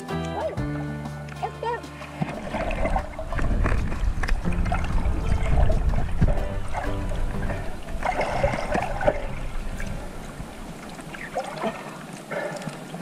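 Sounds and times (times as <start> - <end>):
underwater clicks: 1.2 - 13.0
bubbling: 2.0 - 13.0
underwater rumble of moving water: 2.0 - 13.0.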